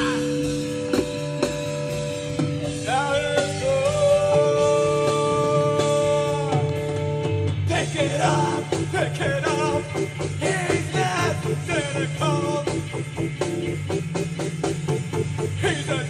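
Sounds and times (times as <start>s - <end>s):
person singing: 0.0s - 0.5s, 2.8s - 7.0s, 7.7s - 13.0s, 15.6s - 16.0s
guitar and bass: 0.0s - 16.0s.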